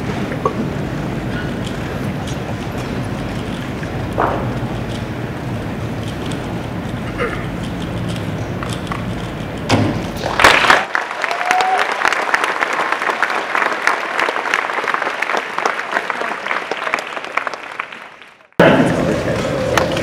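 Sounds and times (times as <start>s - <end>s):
audience applauding: 10.2s - 20.0s.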